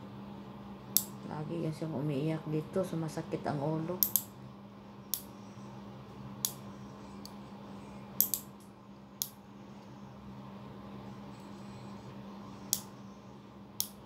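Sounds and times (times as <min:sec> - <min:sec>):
nail clipper clipping: 0:08.2 - 0:08.5.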